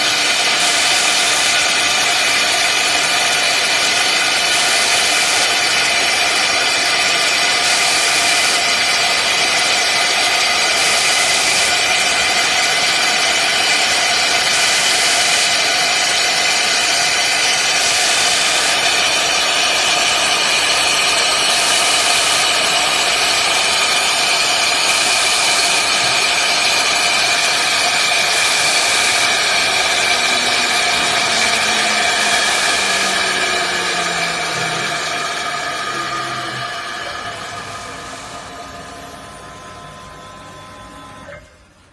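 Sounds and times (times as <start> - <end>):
cutting hiss: 0.0 - 39.0
router spindle whining: 0.0 - 41.9
low gliding tones: 27.1 - 40.4.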